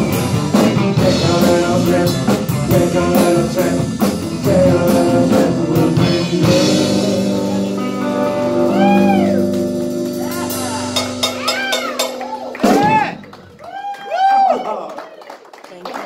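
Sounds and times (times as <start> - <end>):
live band playing: 0.0 - 13.9
held guitar chord ringing: 7.6 - 12.5.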